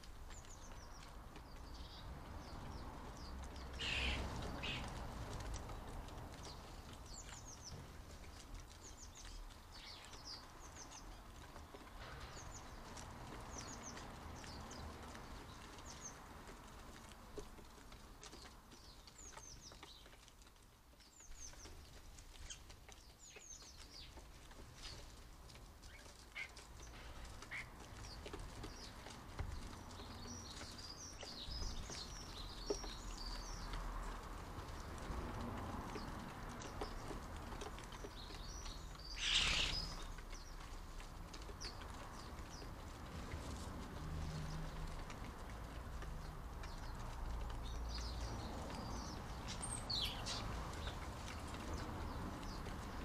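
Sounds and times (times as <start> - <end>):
starlings chirping and whistling: 3.8 - 4.9, 38.5 - 40.1.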